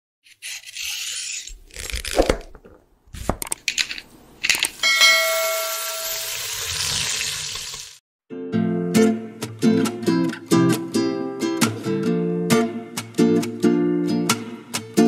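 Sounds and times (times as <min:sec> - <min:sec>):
bell-like ding: 0:04.8 - 0:06.4
shimmering sparkle: 0:04.8 - 0:06.5.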